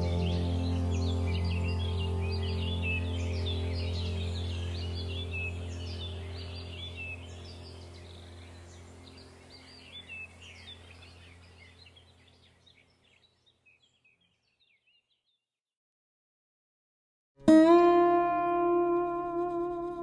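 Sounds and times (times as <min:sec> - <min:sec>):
low hum: 0:00.0 - 0:12.2
birds chirping: 0:00.0 - 0:15.4.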